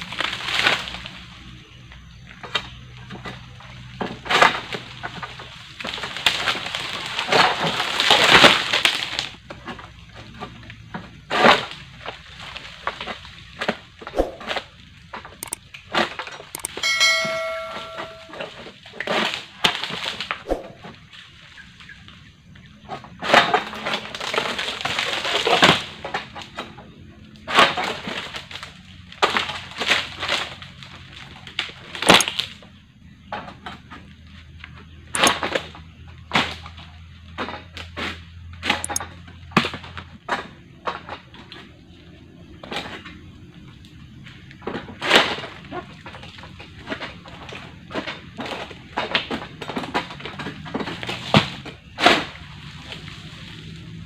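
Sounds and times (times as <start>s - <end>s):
palm fronds cracking and snapping: 0.0s - 1.4s, 4.2s - 9.9s, 11.3s - 15.3s, 19.1s - 20.4s, 23.3s - 26.6s, 27.4s - 32.6s, 45.0s - 53.9s.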